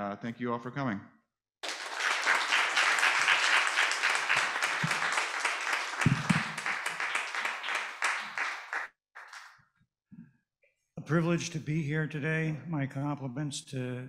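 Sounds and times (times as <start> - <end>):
audience applauding: 1.6 - 9.5.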